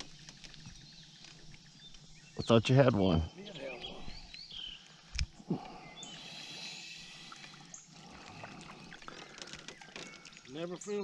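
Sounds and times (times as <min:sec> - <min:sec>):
water splashing and trickling: 0:04.8 - 0:11.0.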